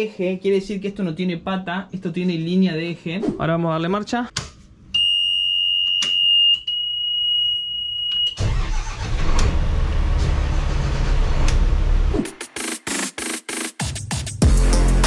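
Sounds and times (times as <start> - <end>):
diesel engine starting and running: 8.4 - 12.3
electronic music: 12.1 - 15.0.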